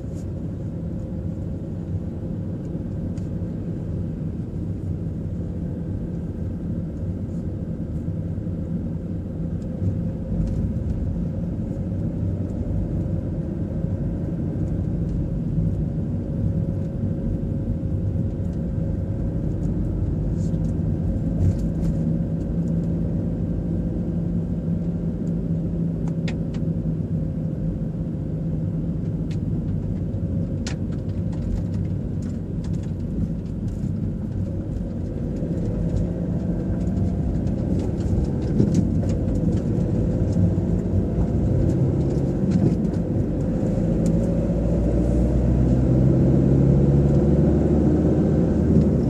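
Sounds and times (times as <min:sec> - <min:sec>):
car engine and tyre rumble: 0:00.0 - 0:49.0.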